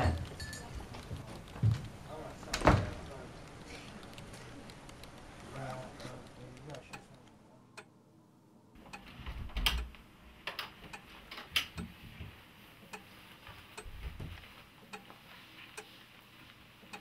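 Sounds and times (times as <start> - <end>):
footsteps: 0.0 - 6.3, 10.7 - 17.0
clock ticking: 2.9 - 7.2, 8.8 - 10.0, 10.8 - 12.0, 12.8 - 16.0, 16.8 - 17.0.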